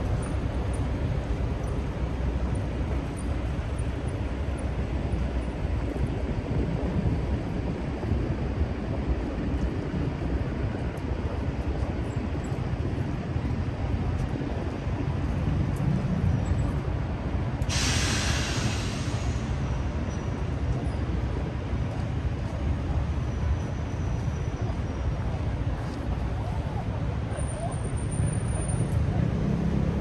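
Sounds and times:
city traffic rumble: 0:00.0 - 0:30.0
hiss of released air: 0:17.6 - 0:19.8.

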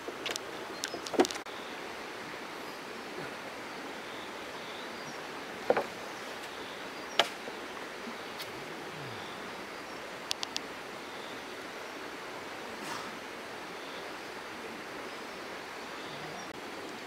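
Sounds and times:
flowing river water: 0:00.0 - 0:17.0
quick light ticks: 0:10.3 - 0:10.7.

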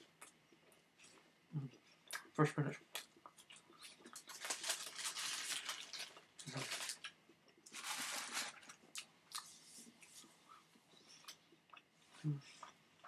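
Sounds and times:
paper wrapper crumpling: 0:04.1 - 0:08.8.

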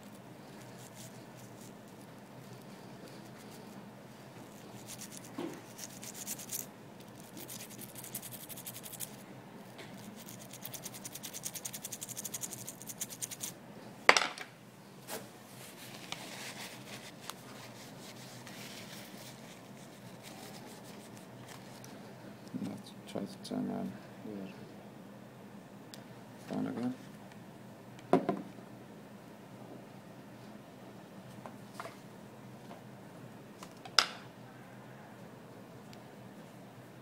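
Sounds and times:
toothbrush scrubbing: 0:04.5 - 0:09.2, 0:10.0 - 0:13.5.

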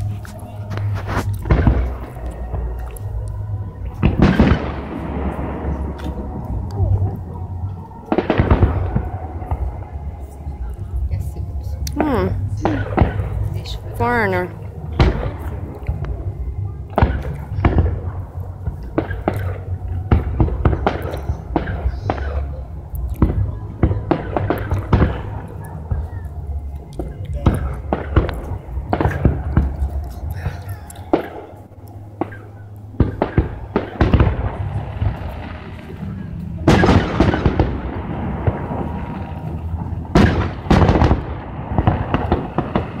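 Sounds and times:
sharp firework crackles: 0:00.0 - 0:03.3, 0:11.9 - 0:32.4, 0:33.0 - 0:43.0
fireworks bursting: 0:00.0 - 0:11.2, 0:11.8 - 0:43.0
steady low rumble: 0:00.0 - 0:43.0.

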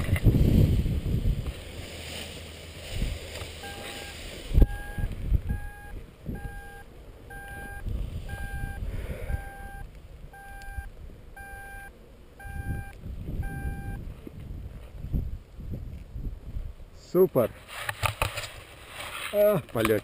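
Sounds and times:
wind gusts on microphone: 0:00.0 - 0:11.6, 0:12.3 - 0:17.0
variometer short beeps: 0:03.6 - 0:14.0.

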